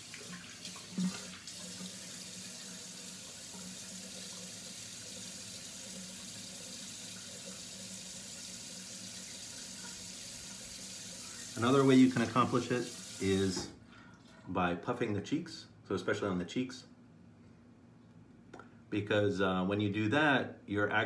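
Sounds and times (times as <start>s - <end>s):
bathroom sink tap running: 0.0s - 13.8s.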